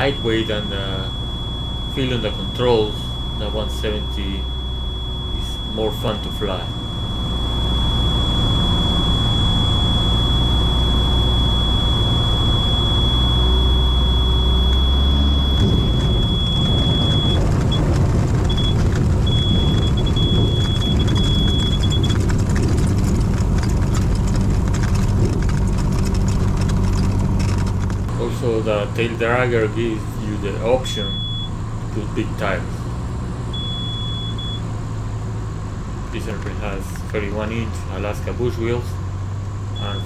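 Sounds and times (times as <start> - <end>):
tyres rumbling over gravel: 0.0 - 1.2, 14.9 - 31.1
high-pitched stall warning horn: 0.0 - 17.4
airplane engine running: 0.0 - 34.6.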